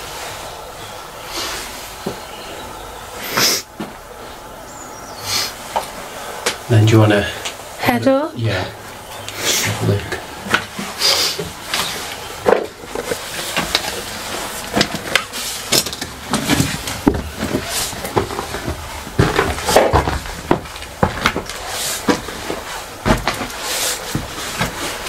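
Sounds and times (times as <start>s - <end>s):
footsteps climbing stairs: 9.1s - 25.0s.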